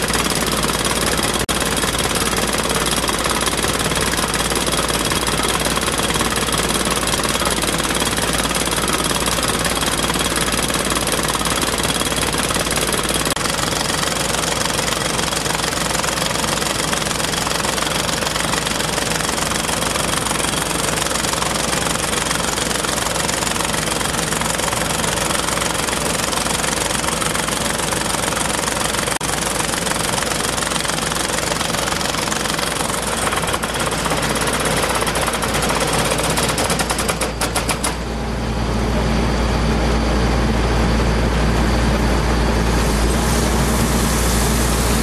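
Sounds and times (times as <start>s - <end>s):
drilling rig running: 0.0s - 45.0s.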